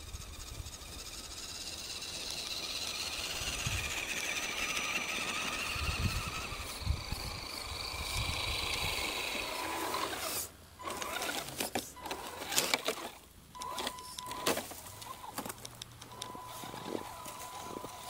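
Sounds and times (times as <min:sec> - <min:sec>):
toy truck motor whining: 0:00.0 - 0:18.0
twigs and snow crackling: 0:08.6 - 0:18.0.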